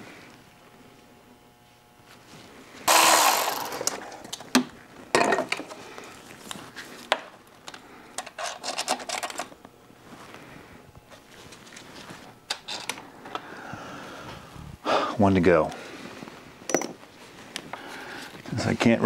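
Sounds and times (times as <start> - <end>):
ratchet clicking: 2.9 - 4.0
loud rasping burst: 2.9 - 4.1.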